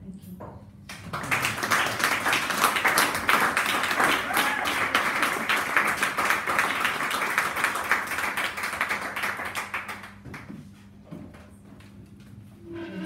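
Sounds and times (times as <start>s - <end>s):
small audience applauding: 0.9s - 10.8s.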